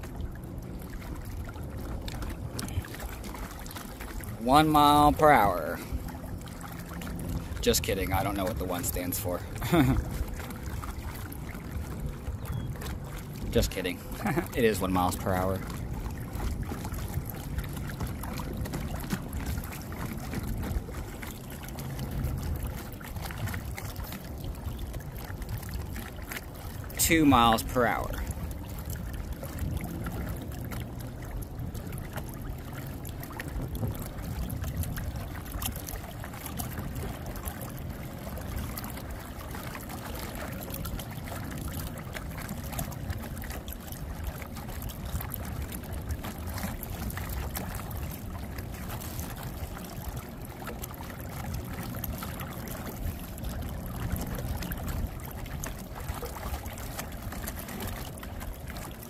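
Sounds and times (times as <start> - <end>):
steady low rumble: 0.0 - 40.0
water splashing around a boat hull: 0.0 - 59.0.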